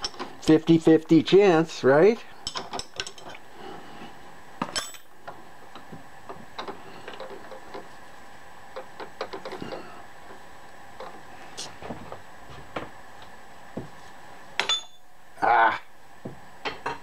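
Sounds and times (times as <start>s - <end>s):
metal tools clinking: 4.7s - 5.1s, 14.6s - 15.0s.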